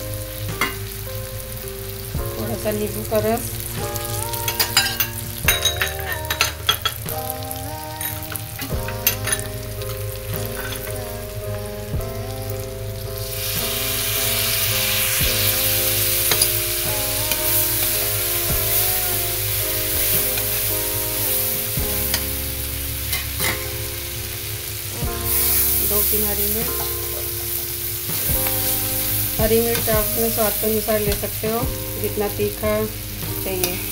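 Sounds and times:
background music with held notes: 0.0 - 33.9
vegetables sizzling in oil: 13.2 - 33.9.

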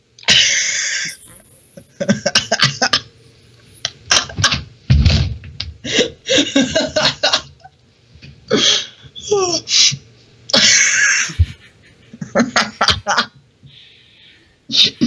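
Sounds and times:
person laughing: 1.8 - 3.0, 4.1 - 4.6, 5.9 - 7.6, 10.5 - 13.3
low thud: 4.9 - 5.7.

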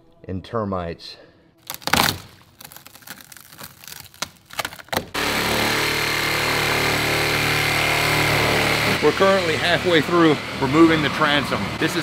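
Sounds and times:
plywood crackling and snapping: 1.6 - 5.8
reciprocating saw whining: 5.2 - 12.0.

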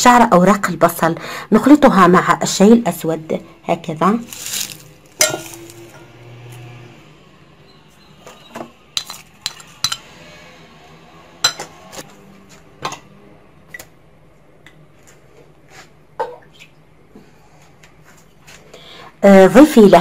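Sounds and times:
glass bowl and saucepan clinking: 4.4 - 5.8, 9.0 - 10.1, 11.4 - 11.8.

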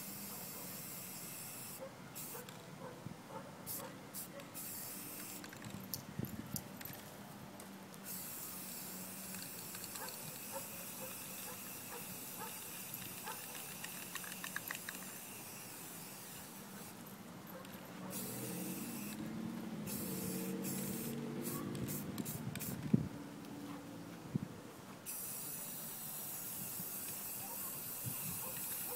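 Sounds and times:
spray paint can hissing: 0.0 - 2.6, 3.7 - 5.7, 8.0 - 17.0, 18.1 - 19.2, 19.8 - 22.9, 25.0 - 28.9.

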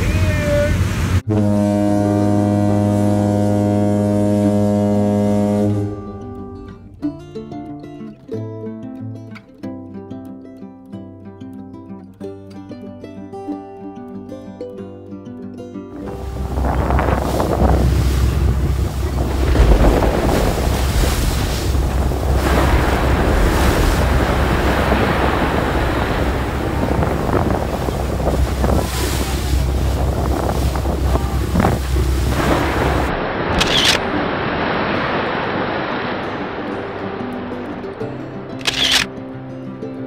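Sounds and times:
wake water rushing: 0.0 - 7.0, 16.0 - 40.0
wind buffeting microphone: 16.0 - 37.1.

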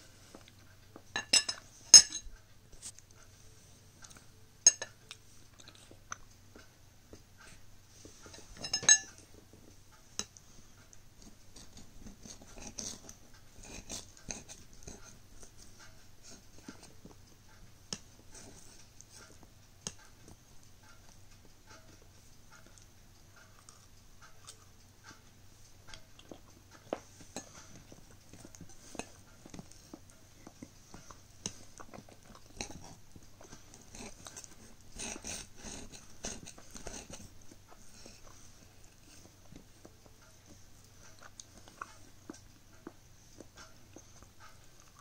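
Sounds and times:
faint chewing: 2.4 - 45.0
knife sawing pastry: 11.2 - 16.9, 33.6 - 39.3
knife and fork scraping plate: 11.6 - 15.2, 33.6 - 38.4.

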